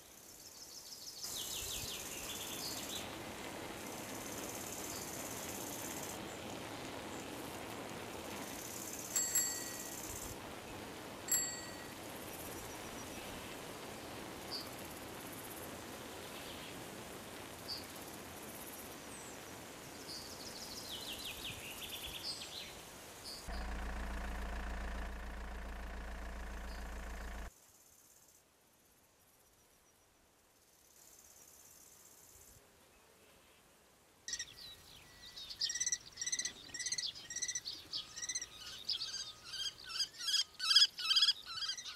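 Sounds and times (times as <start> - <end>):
steady hiss: 0.0 - 27.5
high insect buzzing: 23.5 - 27.5
low mechanical hum: 23.5 - 27.5
small bird chirps: 34.3 - 41.9.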